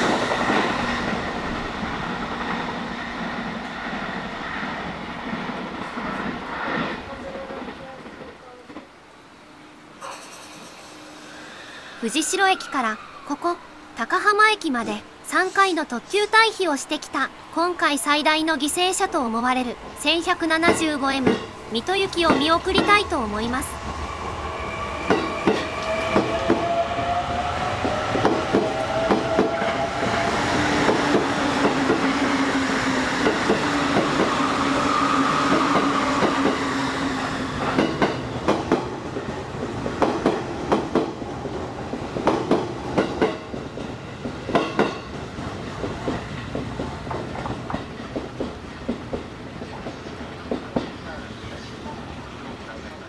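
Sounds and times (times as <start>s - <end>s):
train wheels clicking over rail joints: 37.6s - 51.0s.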